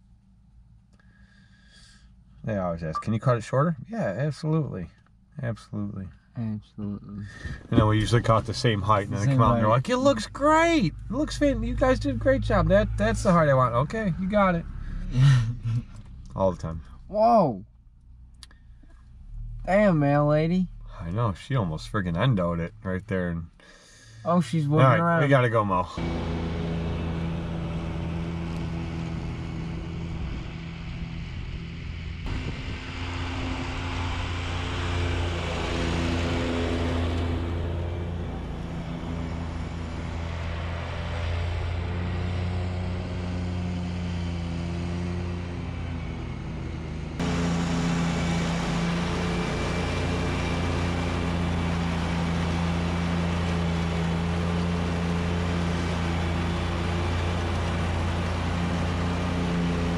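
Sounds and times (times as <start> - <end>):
lawn mower engine running: 26.0 - 59.9.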